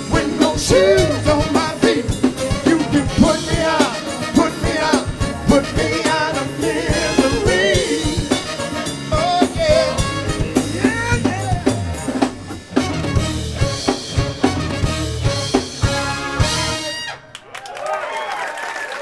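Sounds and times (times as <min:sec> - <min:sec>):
person singing: 0:00.0 - 0:12.0
bass: 0:00.0 - 0:17.4
horns playing melody: 0:00.0 - 0:17.4.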